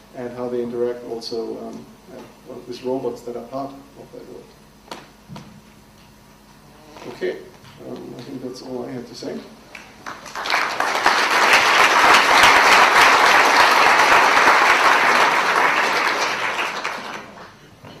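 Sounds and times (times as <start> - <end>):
audience applauding: 9.7 - 17.6.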